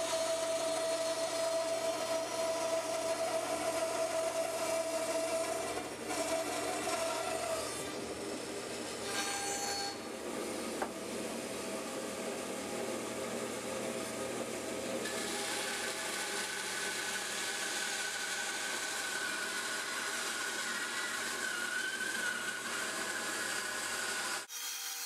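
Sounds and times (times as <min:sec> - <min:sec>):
bandsaw cutting log: 0:00.0 - 0:10.7, 0:15.0 - 0:25.0
bandsaw whine: 0:15.0 - 0:24.9.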